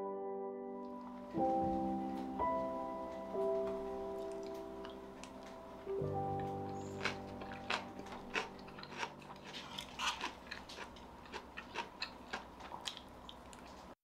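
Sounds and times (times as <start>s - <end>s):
chewing: 4.2s - 5.6s, 6.2s - 14.0s.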